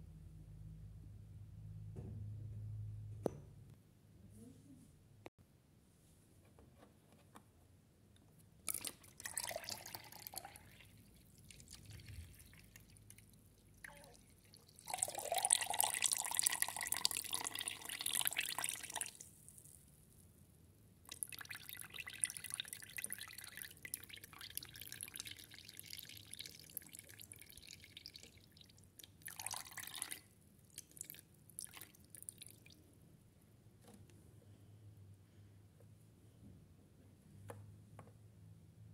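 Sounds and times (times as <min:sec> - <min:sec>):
water dripping into plastic jug: 0:08.6 - 0:19.7, 0:21.0 - 0:32.8.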